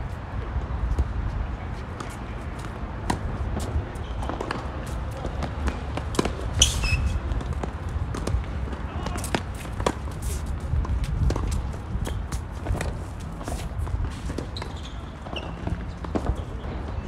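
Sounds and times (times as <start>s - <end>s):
shuffling footsteps: 0.0s - 16.9s
short high squeak: 6.6s - 7.2s.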